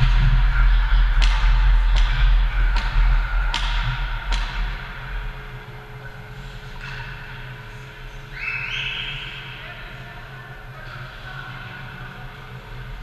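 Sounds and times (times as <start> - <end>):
low rumble: 0.0 - 6.3.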